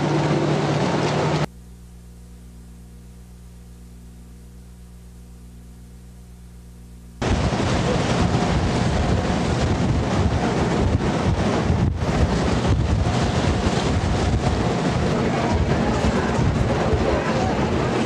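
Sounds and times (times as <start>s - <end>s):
low steady hum: 0.0s - 18.0s
water: 0.0s - 18.0s
wind noise on microphone: 7.2s - 18.0s.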